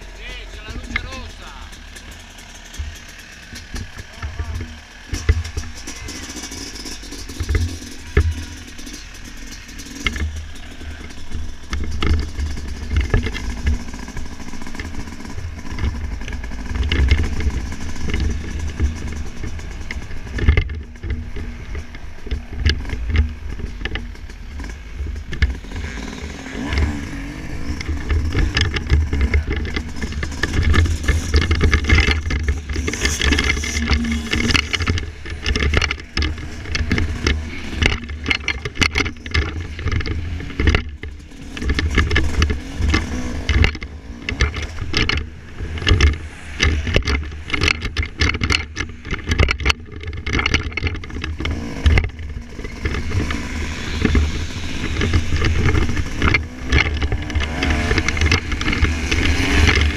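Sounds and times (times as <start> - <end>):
heavy low rumble: 0.0 - 6.2
two-stroke motocross bike engine: 0.0 - 59.9.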